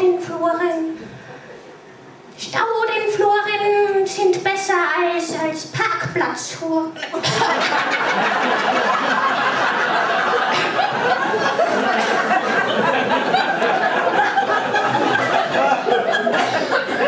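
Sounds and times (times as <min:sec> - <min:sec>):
audience laughing: 0:07.0 - 0:17.0.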